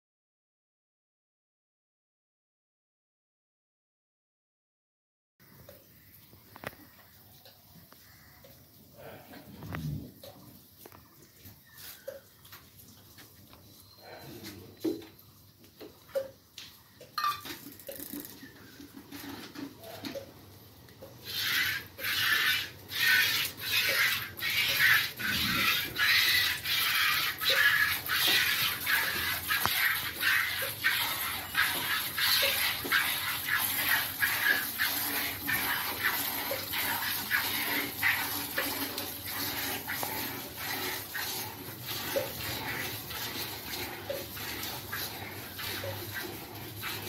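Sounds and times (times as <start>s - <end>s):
milk squirting into a pail: 21.0s - 47.0s.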